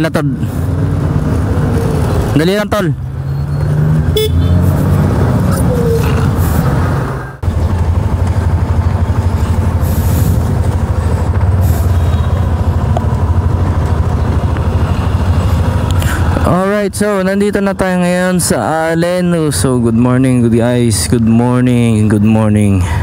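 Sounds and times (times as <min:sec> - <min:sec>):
scooter engine running: 0:07.4 - 0:16.4.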